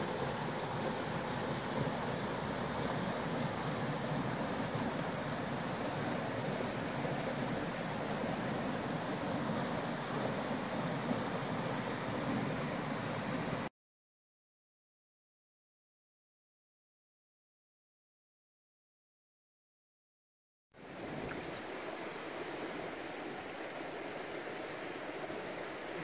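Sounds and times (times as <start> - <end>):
rushing mountain torrent: 0.0 - 13.7.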